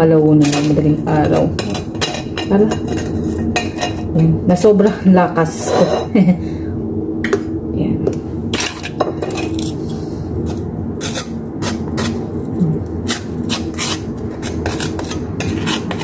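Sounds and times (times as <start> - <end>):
knife scraping butter on toast: 13.1 - 16.0.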